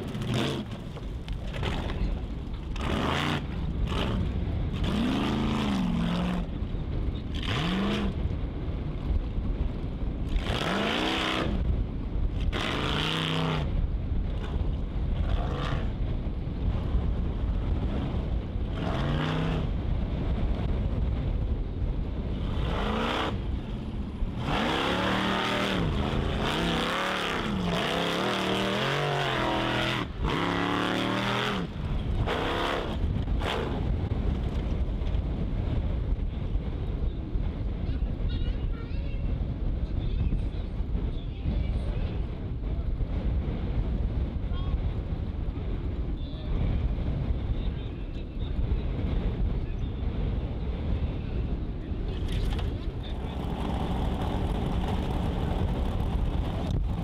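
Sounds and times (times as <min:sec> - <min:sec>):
buggy engine revving: 0:00.0 - 0:01.0, 0:02.6 - 0:06.6, 0:07.3 - 0:08.4, 0:10.2 - 0:11.8, 0:12.4 - 0:16.0, 0:17.7 - 0:19.9, 0:22.4 - 0:33.9, 0:52.2 - 0:57.0.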